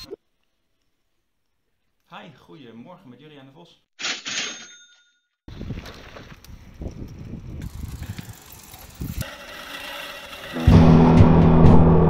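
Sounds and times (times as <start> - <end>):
wheels rumbling on paving: 5.5 - 11.4.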